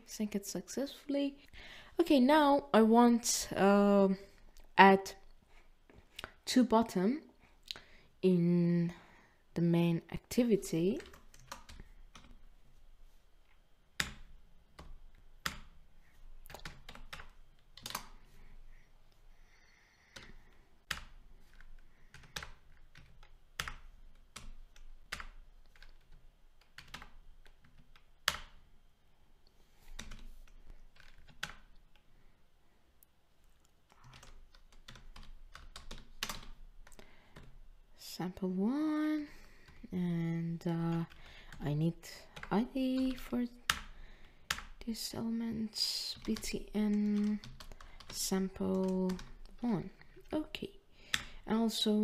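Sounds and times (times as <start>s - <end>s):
typing on computer keyboard: 10.9s - 12.4s, 14.0s - 15.8s, 16.4s - 18.2s, 20.1s - 28.6s, 29.9s - 32.0s, 33.9s - 37.6s, 42.2s - 44.8s, 46.1s - 50.3s.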